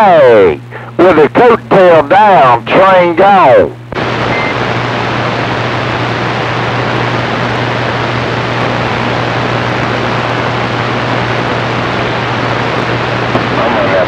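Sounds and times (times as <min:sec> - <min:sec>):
radio static hiss: 0:00.0 - 0:14.0
low hum: 0:03.4 - 0:14.0.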